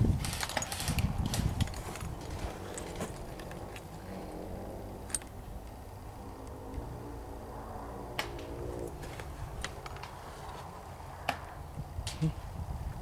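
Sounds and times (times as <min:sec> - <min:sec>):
handling noise: 0:00.0 - 0:05.8, 0:08.2 - 0:12.3
low rumble of wind: 0:00.0 - 0:13.0.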